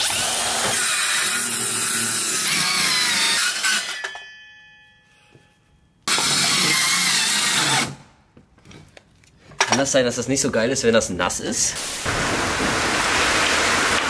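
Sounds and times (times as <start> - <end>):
circular saw cutting wood: 0.0 - 4.2, 6.1 - 8.0.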